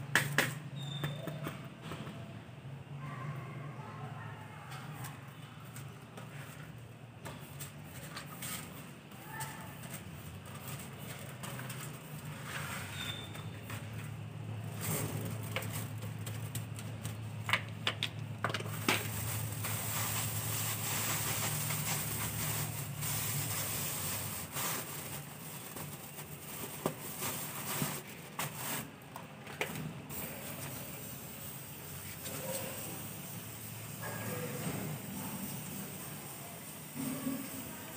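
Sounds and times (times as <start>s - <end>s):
plastic bag rustling: 7.7s - 17.6s, 18.5s - 29.0s
brush and dustpan scraping: 18.7s - 28.9s.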